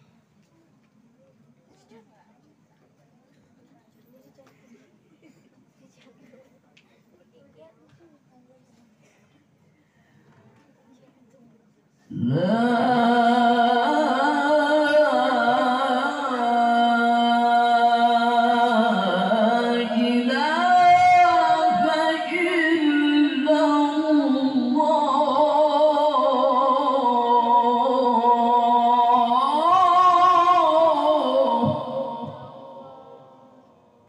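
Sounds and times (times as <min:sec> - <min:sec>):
man reciting melodically into microphone: 0:12.1 - 0:33.6.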